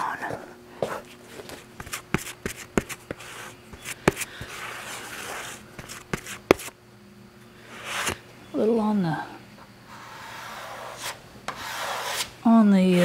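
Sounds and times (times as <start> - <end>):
spreader scraping on board: 4.4 - 6.3, 10.0 - 13.0.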